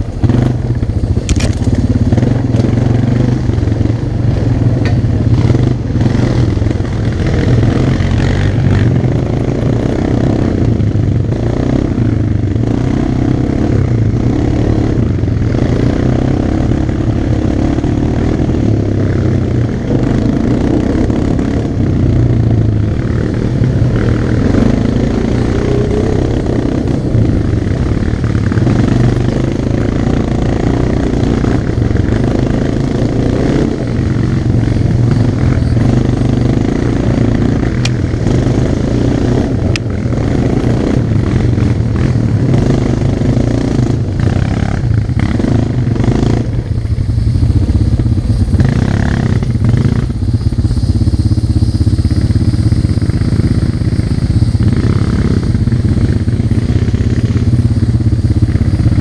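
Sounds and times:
quad bike engine running: 0.0 - 59.0
wind noise: 0.0 - 59.0
sharp ticks: 4.6 - 59.0.

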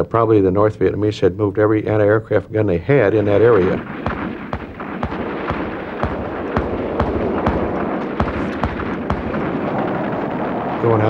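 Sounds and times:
distant gunfire rumble: 3.1 - 11.0
anti-aircraft gun shots: 3.2 - 11.0.

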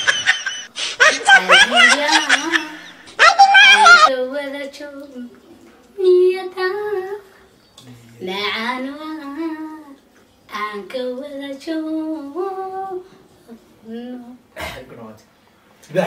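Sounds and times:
woman singing unaccompanied: 1.2 - 7.4, 8.2 - 14.5.

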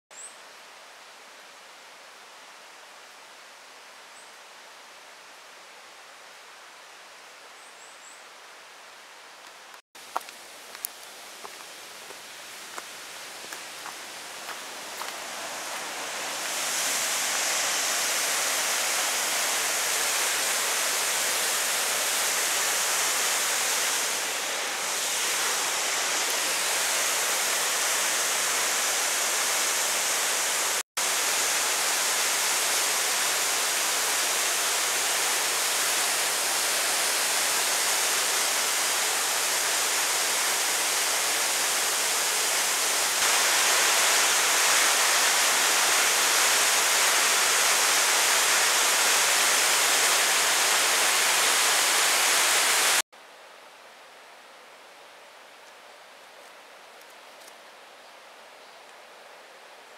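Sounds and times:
waterfall rushing: 10.6 - 53.0.

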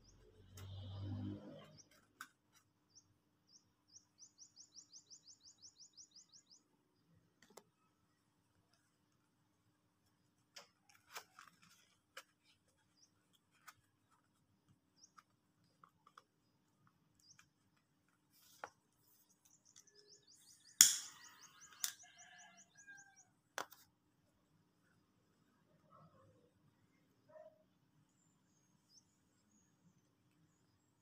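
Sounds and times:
faint clicks and taps: 7.3 - 7.8
sharp click: 20.8 - 22.0.

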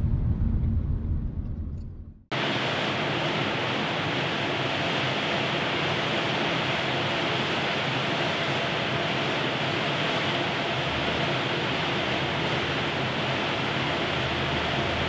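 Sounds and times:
steady air rushing: 0.0 - 6.0.

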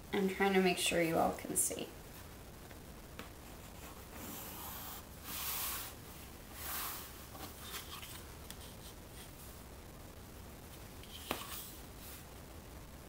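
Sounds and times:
pencil scratching on paper: 3.5 - 5.9.

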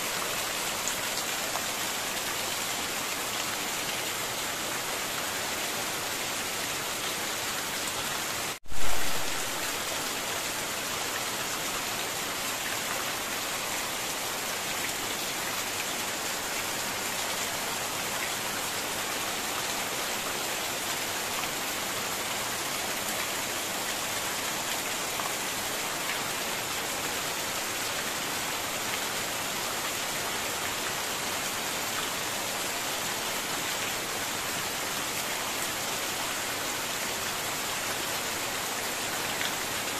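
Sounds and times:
heavy rain on a corrugated roof: 0.0 - 39.9
loud low thump: 8.6 - 9.6.

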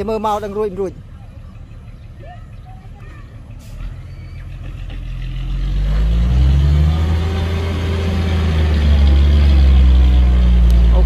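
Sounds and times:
diesel truck engine rumbling: 0.0 - 11.0.

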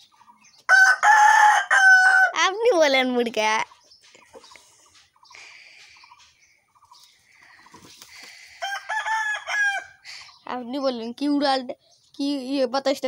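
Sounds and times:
chickens clucking: 0.0 - 1.3, 3.2 - 11.0
rooster crowing: 0.7 - 2.4, 8.5 - 10.0.

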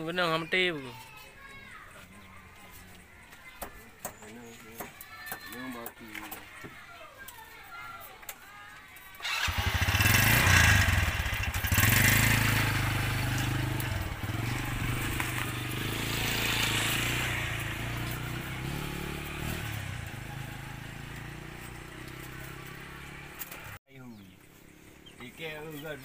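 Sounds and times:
motorcycle engine revving: 9.2 - 23.8.

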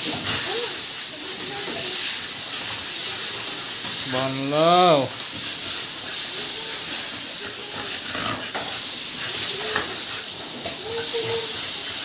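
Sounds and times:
hose spray nozzle hissing: 0.0 - 12.0.

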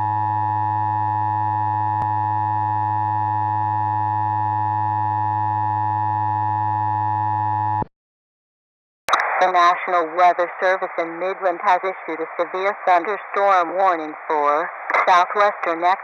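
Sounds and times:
steady electronic alarm tone: 0.0 - 7.8.

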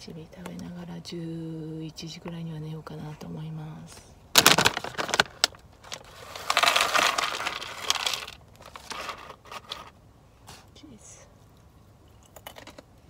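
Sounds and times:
plastic snack bag crinkling: 4.4 - 9.9.

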